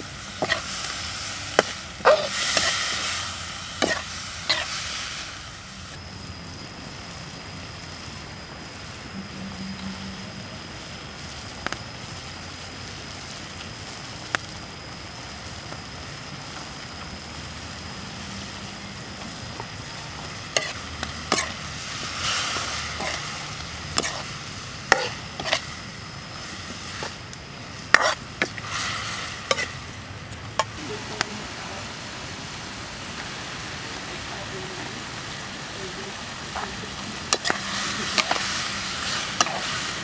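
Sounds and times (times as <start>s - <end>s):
food sizzling in a wok: 0.0s - 40.0s
metal ladle scraping a wok: 20.4s - 25.8s, 27.9s - 29.8s, 37.3s - 40.0s.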